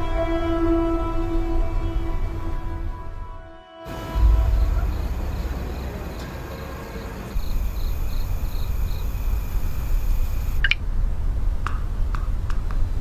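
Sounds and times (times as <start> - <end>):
insect chirps: 3.9 - 10.8
low rumble: 3.9 - 11.6.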